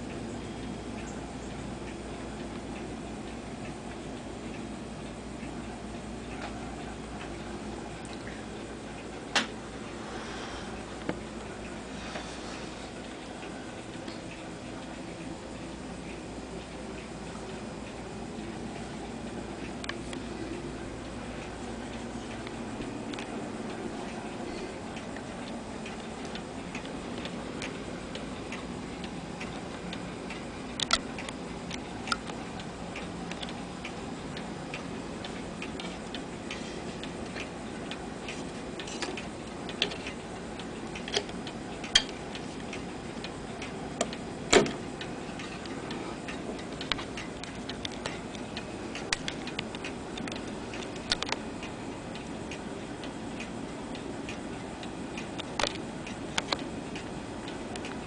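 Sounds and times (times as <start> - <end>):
clock ticking: 13.0 - 58.0
sharp clock clicks: 24.9 - 58.0.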